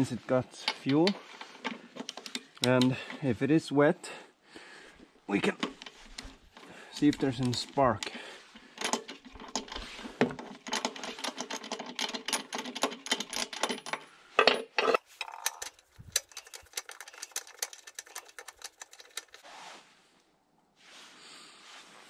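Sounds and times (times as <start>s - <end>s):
wrench clicking and rattling: 0.6s - 3.0s, 8.8s - 19.4s.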